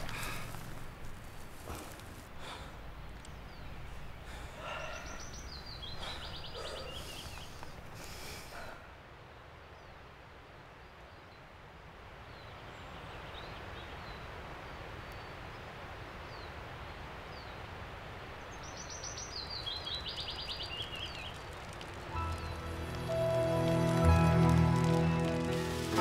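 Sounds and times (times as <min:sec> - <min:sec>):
small birds chirping: 0:00.0 - 0:10.0, 0:12.2 - 0:26.0
outdoor background noise: 0:00.0 - 0:26.0
music: 0:22.1 - 0:26.0.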